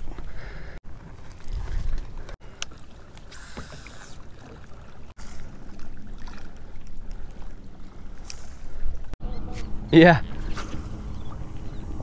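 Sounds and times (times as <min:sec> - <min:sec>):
water lapping against kayak hull: 0:00.0 - 0:09.2.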